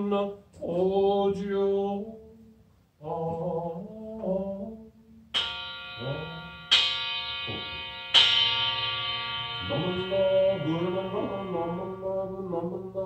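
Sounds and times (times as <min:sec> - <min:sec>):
bowl bell ringing: 0:05.4 - 0:13.0
man chanting: 0:06.0 - 0:06.6, 0:07.4 - 0:07.8, 0:09.6 - 0:13.0.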